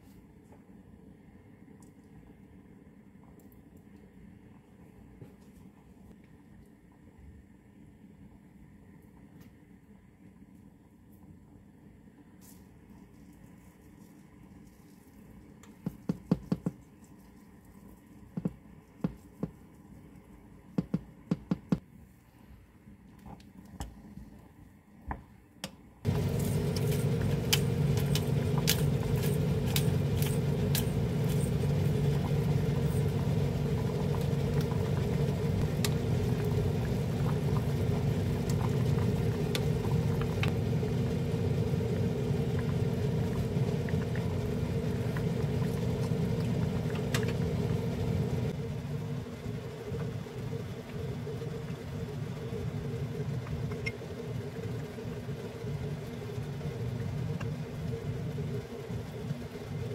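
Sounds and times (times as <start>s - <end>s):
fan hum: 25.6s - 59.9s.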